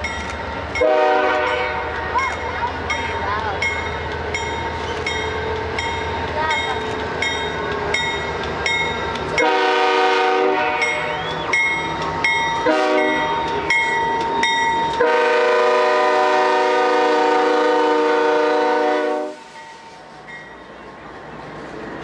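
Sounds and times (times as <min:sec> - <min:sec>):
locomotive bell ringing: 0:00.0 - 0:09.9, 0:10.7 - 0:15.7, 0:19.5 - 0:20.8
rumble of train cars rolling: 0:00.0 - 0:22.0
locomotive air horn blasts: 0:00.8 - 0:01.9, 0:09.4 - 0:11.3, 0:12.6 - 0:13.3, 0:15.0 - 0:19.5.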